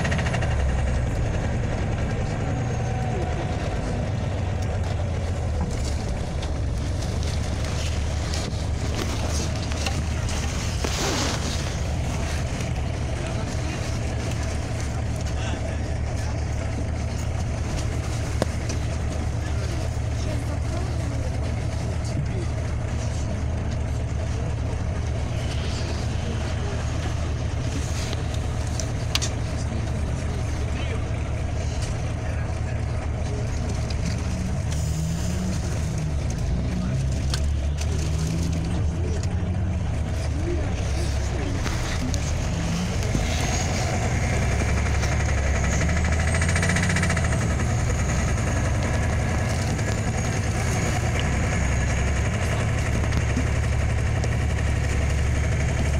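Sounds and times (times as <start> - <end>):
bus engine drone: 0.0 - 55.9.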